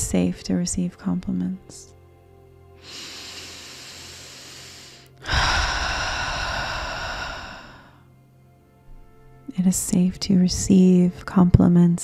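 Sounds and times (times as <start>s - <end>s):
person breathing deeply: 2.8s - 8.1s.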